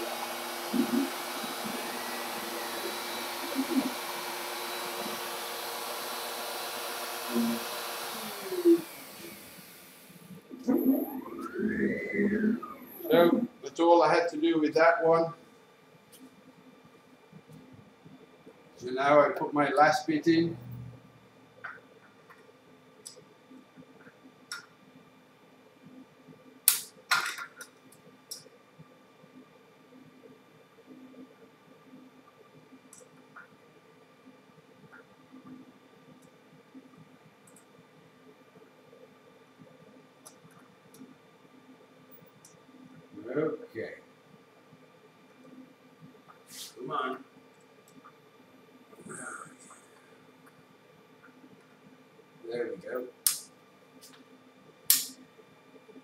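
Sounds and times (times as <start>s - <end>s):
router spindle running: 0.0s - 10.2s
axis motors whirring: 0.0s - 13.5s
faint steady hum: 0.0s - 56.0s.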